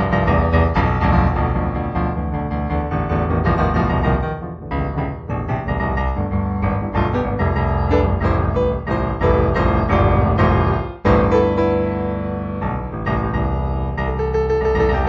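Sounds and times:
solo piano music: 0.0 - 15.0.

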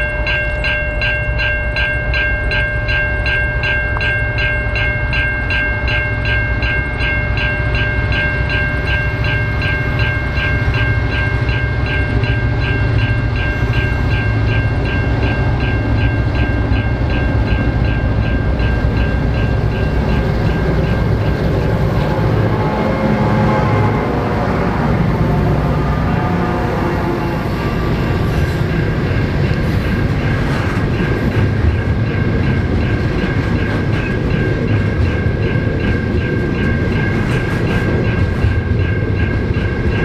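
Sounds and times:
diesel locomotive engine drone: 0.0 - 40.0
rapid pulsing high ringing: 0.0 - 40.0.

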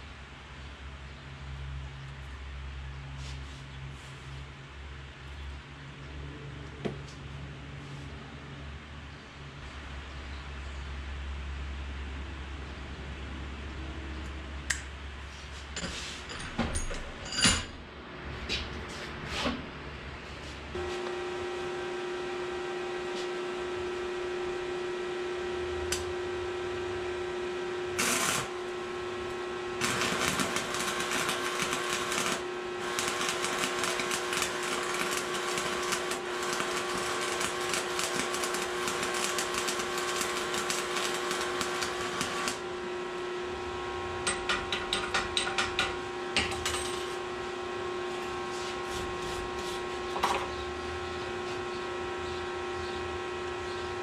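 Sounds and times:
steady hum: 19.1 - 54.0
welding arc crackling: 27.6 - 43.2
wire brush scratching: 29.8 - 42.6.

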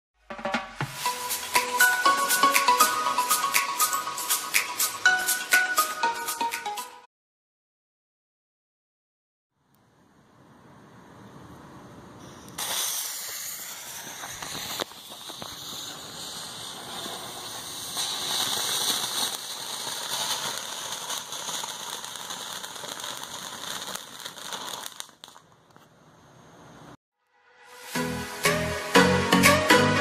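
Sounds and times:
ground fountain firework hissing: 1.0 - 5.0, 12.2 - 25.4, 27.8 - 29.1.

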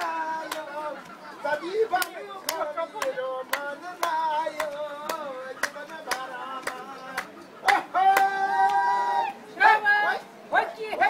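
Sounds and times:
hand claps: 0.0 - 8.8
voices singing: 0.0 - 11.0.

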